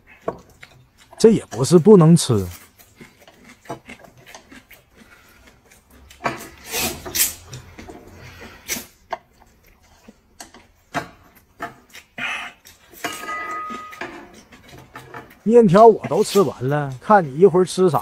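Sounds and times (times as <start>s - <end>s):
person slurping noodles: 2.4s - 9.0s.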